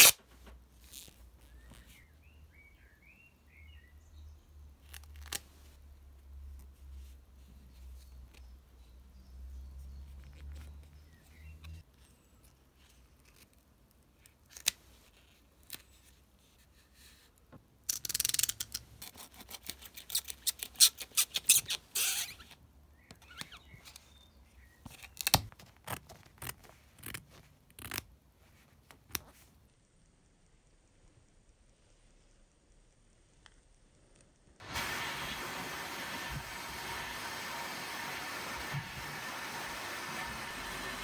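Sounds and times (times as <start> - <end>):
foil tape crinkling: 0.0 - 0.2.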